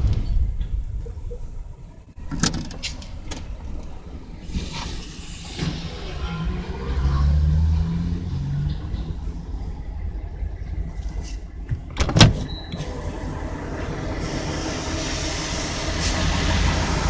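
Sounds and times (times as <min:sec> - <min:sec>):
truck engine drone: 0:00.6 - 0:17.0
car tyre hiss: 0:04.4 - 0:07.0, 0:14.0 - 0:17.0.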